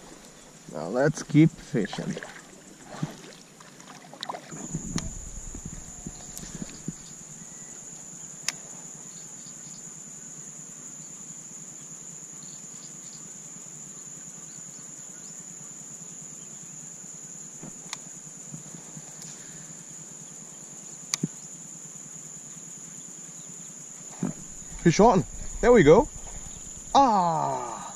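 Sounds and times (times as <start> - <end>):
insect chorus: 0.0 - 27.9.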